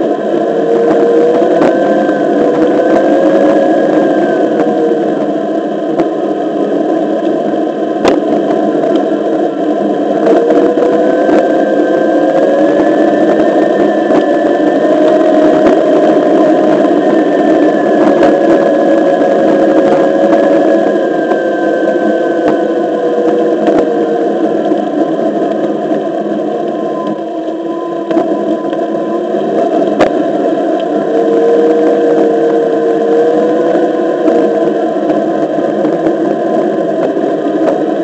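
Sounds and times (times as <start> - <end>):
electric hub motor whining: 0.0 - 38.0.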